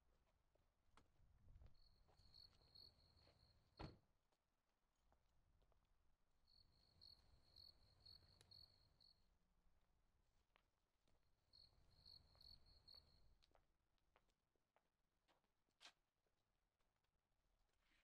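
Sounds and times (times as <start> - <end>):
cricket chirping: 1.8 - 3.5, 6.5 - 9.2, 11.5 - 13.2.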